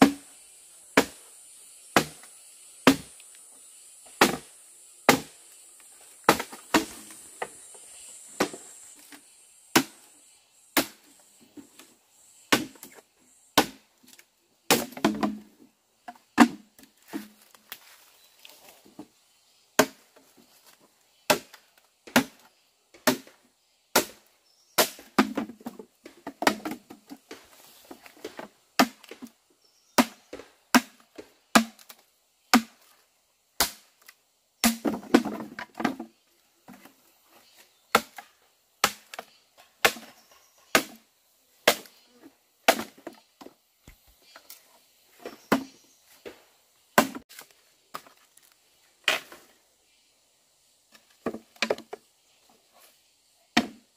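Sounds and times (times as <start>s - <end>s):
wood being chopped: 0.0s - 0.2s, 2.0s - 3.2s, 4.2s - 4.5s, 5.1s - 5.4s, 6.3s - 7.6s, 9.7s - 10.0s, 10.8s - 11.1s, 12.5s - 13.0s, 13.6s - 15.5s, 16.4s - 17.5s, 19.8s - 20.0s, 21.3s - 27.4s, 28.0s - 29.3s, 30.0s - 32.9s, 33.6s - 36.1s, 37.9s - 41.0s, 41.6s - 42.0s, 42.7s - 43.2s, 45.2s - 45.8s, 47.0s - 48.2s, 51.2s - 52.0s, 53.6s - 53.9s.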